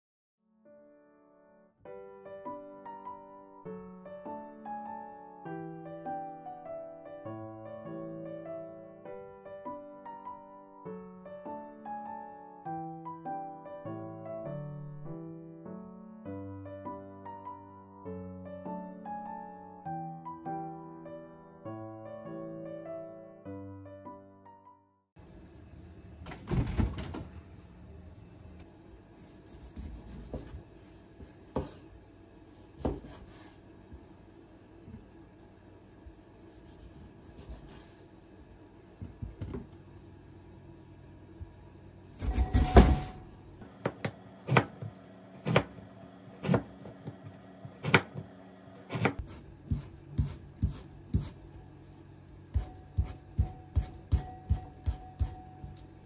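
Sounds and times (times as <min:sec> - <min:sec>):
knife cutting on wooden board: 0:29.4 - 0:30.6, 0:43.8 - 0:45.8, 0:46.4 - 0:51.4.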